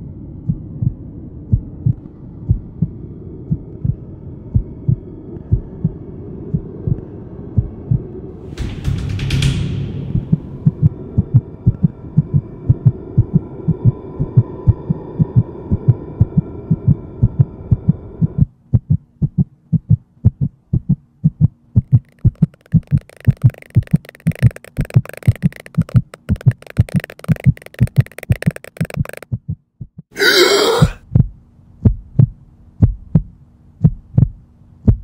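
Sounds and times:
low drone: 0.0 - 18.4
heartbeat-like low thuds: 0.0 - 22.0, 31.1 - 35.0
faint steady hum: 0.0 - 29.2.

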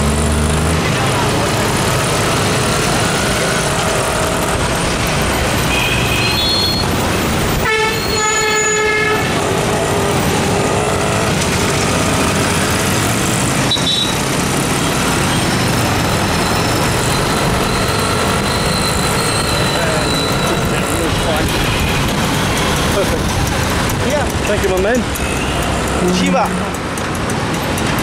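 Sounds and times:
motorbike engine and road noise: 0.0 - 28.0
vehicle horns honking: 5.5 - 11.7, 13.6 - 14.3, 18.6 - 23.2, 25.1 - 26.6.

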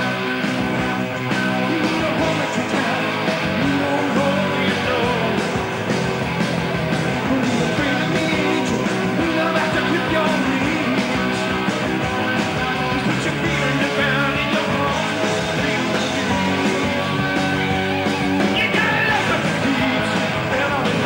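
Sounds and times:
man singing lead vocals: 0.0 - 5.9, 7.1 - 21.0
rock band playing live: 0.0 - 21.0.

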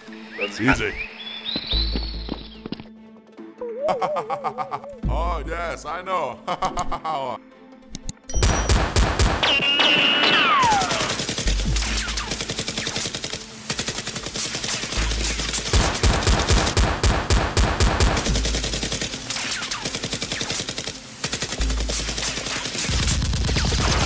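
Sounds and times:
rapid automatic gunfire: 8.8 - 24.0.

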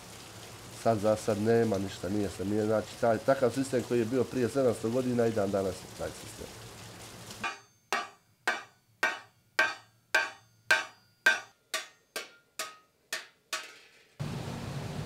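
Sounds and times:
hammer striking iron on anvil: 7.4 - 13.9.

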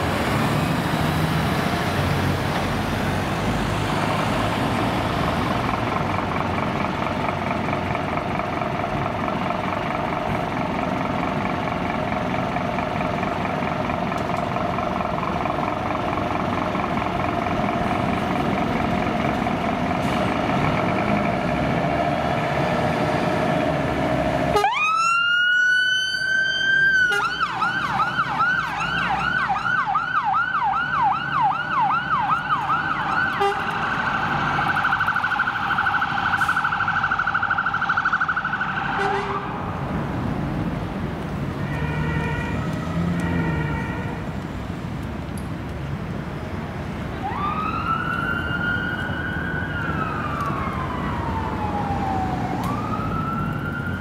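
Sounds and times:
truck engine running: 2.3 - 24.5
fire engine electronic siren: 24.4 - 39.8, 41.6 - 44.4, 47.2 - 54.0.

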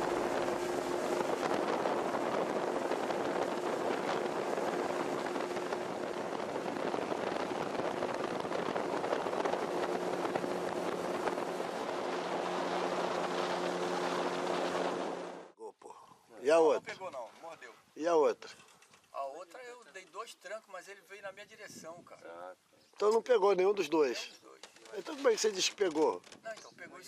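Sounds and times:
outboard motor running: 0.0 - 15.5
water rushing along hull: 0.0 - 15.6.

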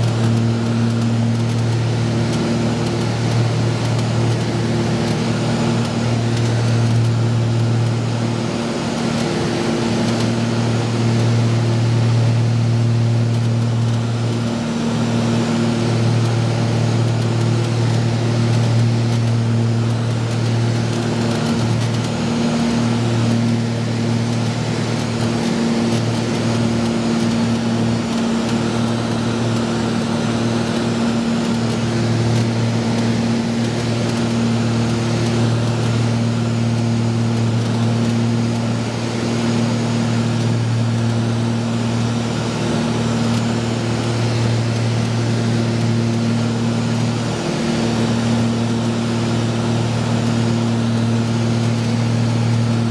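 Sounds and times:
aircraft engines droning: 0.0 - 52.9.

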